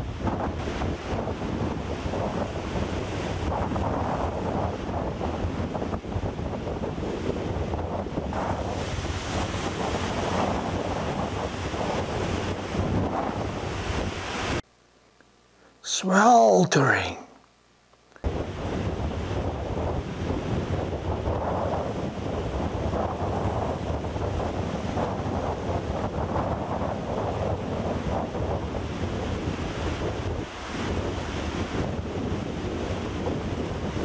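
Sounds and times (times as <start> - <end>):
wind buffeting microphone: 0.0 - 14.6, 18.3 - 34.0
surf crashing over rocks: 8.3 - 14.6.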